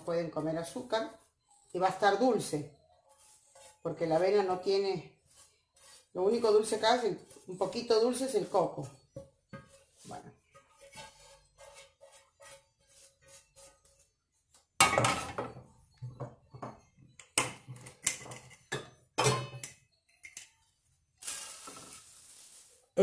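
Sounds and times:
cookware clanking against bowl: 0:17.4 - 0:20.5
oats pouring into pan: 0:21.2 - 0:23.0.

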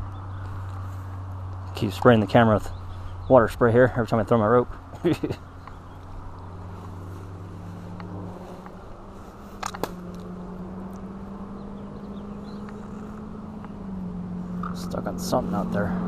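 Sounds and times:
vehicle engine drone: 0:00.0 - 0:16.0
sharp clicks: 0:09.5 - 0:10.3.

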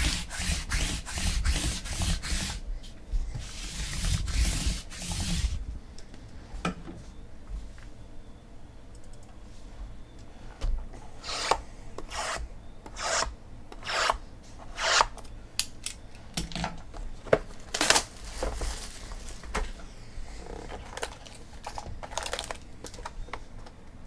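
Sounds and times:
cardboard boxes sliding and rubbing: 0:03.4 - 0:05.6.

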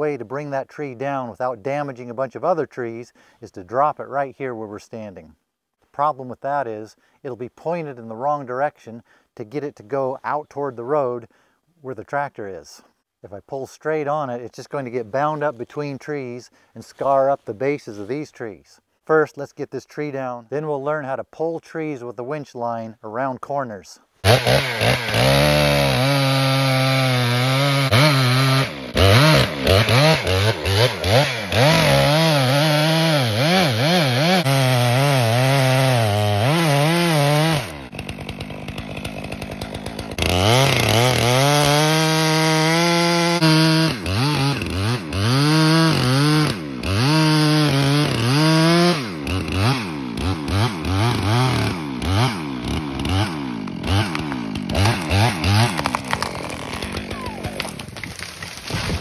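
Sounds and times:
chainsaw idling: 0:24.2 - 0:58.8
chainsaw cutting wood: 0:24.2 - 0:59.0.

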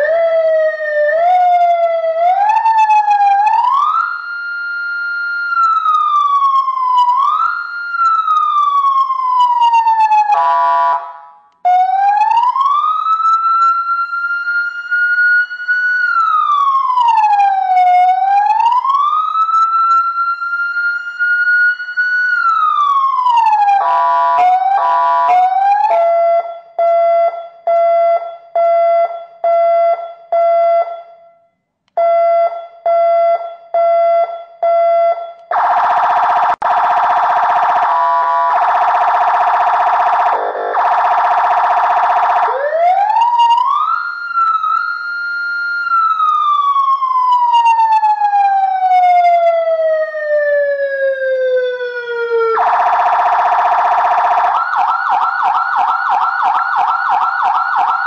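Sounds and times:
electronic siren wailing: 0:00.0 - 0:28.3, 0:35.1 - 0:58.0
harsh buzzing siren tone: 0:00.0 - 0:31.2, 0:32.0 - 0:58.0
siren beeps: 0:09.3 - 0:17.6, 0:18.4 - 0:49.6, 0:51.9 - 0:58.0.

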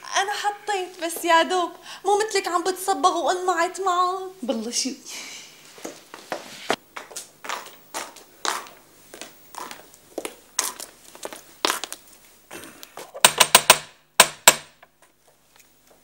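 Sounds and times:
footsteps on stone: 0:05.8 - 0:12.1
knocking on metal gate: 0:13.2 - 0:14.8.

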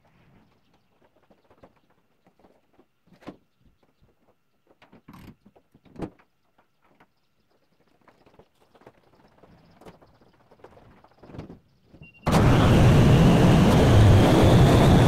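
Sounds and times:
faint knocks and clatter: 0:00.4 - 0:12.0.

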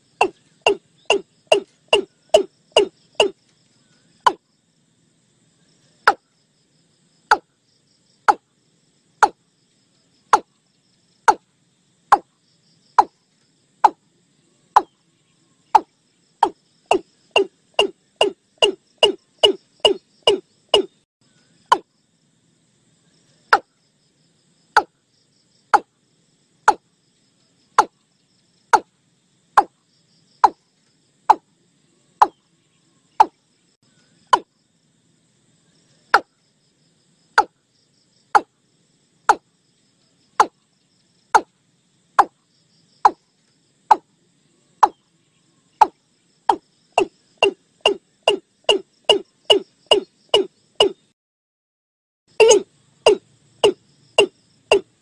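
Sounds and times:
bird calling hollow falling notes: 0:00.2 - 0:03.4, 0:15.7 - 0:21.0, 0:47.0 - 0:51.0, 0:52.4 - 0:54.9.

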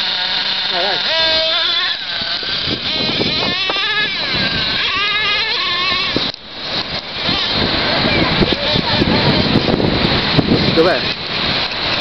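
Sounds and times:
small engine revving whine: 0:00.0 - 0:12.0.

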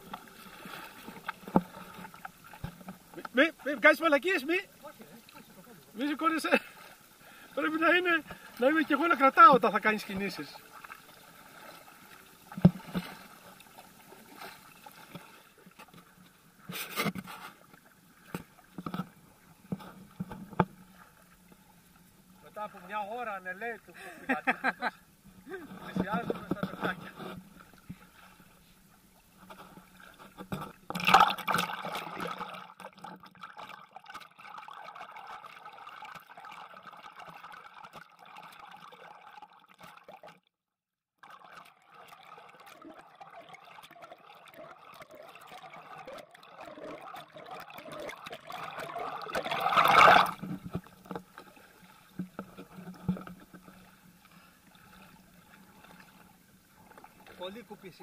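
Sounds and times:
paddles dipping and water splashing: 0:00.0 - 0:40.5, 0:41.2 - 0:58.0
loud water splashes: 0:30.9 - 0:35.4, 0:45.2 - 0:50.6.

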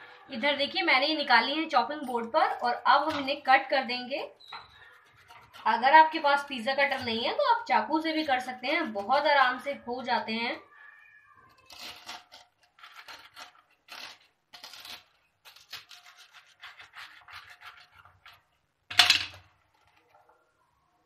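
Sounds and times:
pizza cutter crunching through toast: 0:04.8 - 0:05.8, 0:11.5 - 0:18.5.

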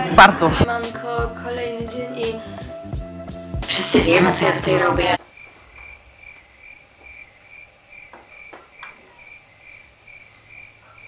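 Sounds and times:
crickets chirping: 0:05.2 - 0:11.0.

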